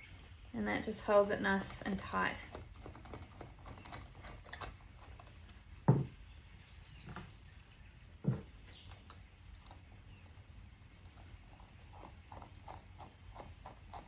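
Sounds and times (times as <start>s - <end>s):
dull knocks: 5.8s - 6.2s.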